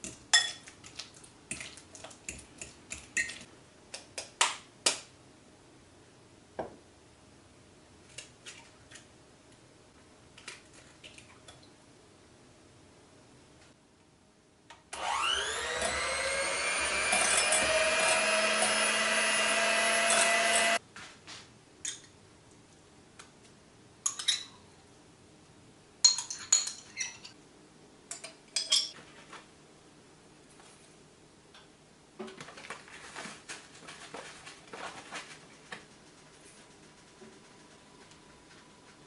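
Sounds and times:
electric hand mixer whining: 15.0s - 20.8s.

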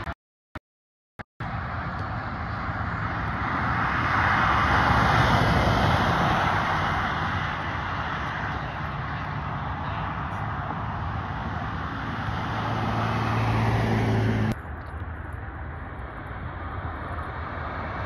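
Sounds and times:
vehicle driving past: 1.4s - 14.6s.

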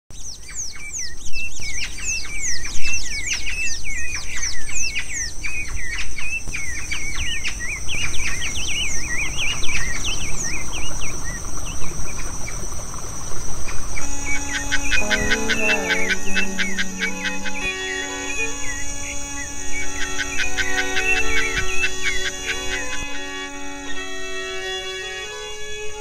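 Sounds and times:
high insect-like drone: 12.6s - 26.0s
birds chirping and calling: 13.6s - 23.8s.

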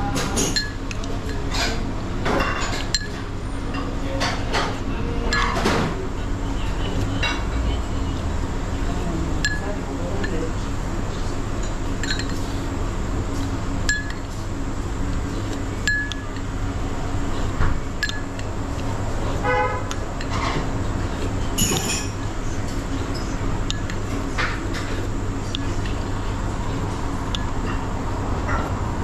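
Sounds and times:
steady background hum: 0.0s - 29.0s
dishes and cutlery clinking: 0.1s - 6.0s, 11.6s - 12.5s, 17.6s - 18.5s, 21.3s - 22.2s.

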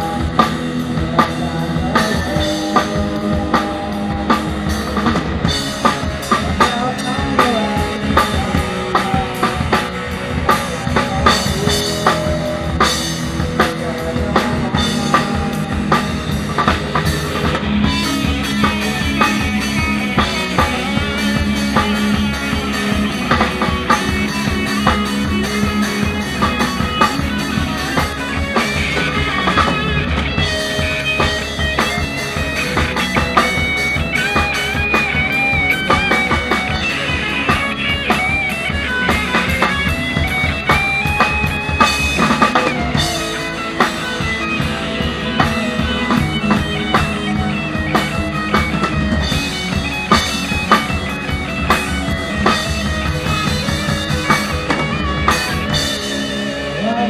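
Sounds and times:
high lead guitar line: 0.0s - 57.0s
rock band playing live: 0.0s - 57.0s.

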